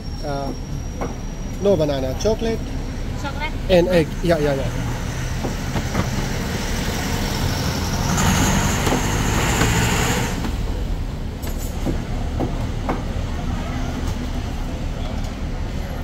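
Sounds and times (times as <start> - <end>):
street traffic rumble: 0.0 - 16.0
vehicle passing with hiss: 4.0 - 10.9.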